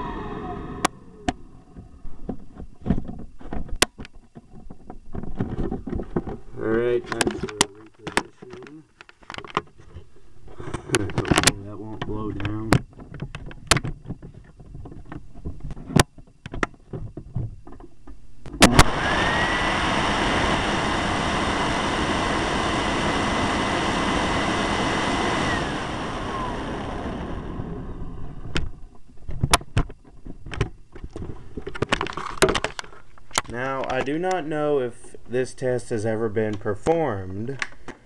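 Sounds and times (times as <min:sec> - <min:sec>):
vacuum cleaner motor whining: 0:00.0 - 0:02.0, 0:18.6 - 0:28.9
air rushing past microphone: 0:00.0 - 0:02.2
handling knocks and clicks: 0:10.7 - 0:18.7
vacuum cleaner switch click: 0:18.6 - 0:27.9.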